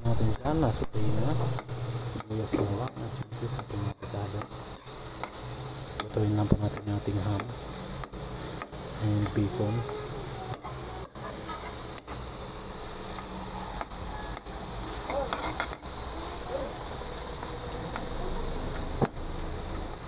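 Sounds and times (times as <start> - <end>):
meat sizzling in oil: 0.0 - 20.0.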